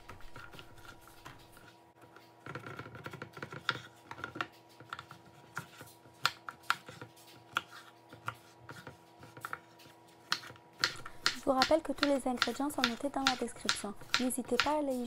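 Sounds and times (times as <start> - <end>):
knife chopping on wooden board: 4.9 - 15.0.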